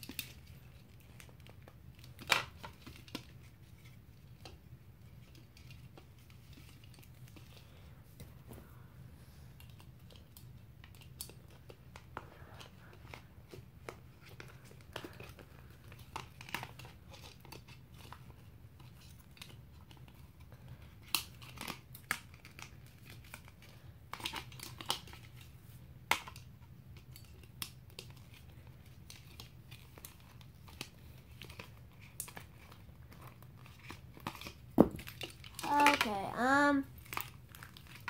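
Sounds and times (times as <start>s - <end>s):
plastic packaging crinkling: 27.0s - 38.0s.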